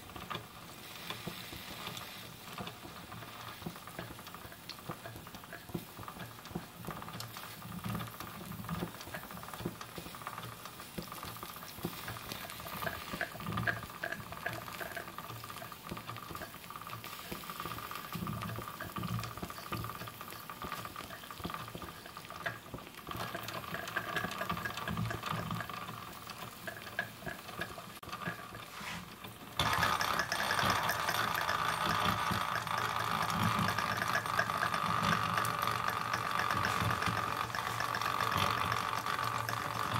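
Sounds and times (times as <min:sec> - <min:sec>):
steam hissing: 0:00.0 - 0:22.3, 0:28.6 - 0:39.9
soft low steam chuffs: 0:00.5 - 0:07.6.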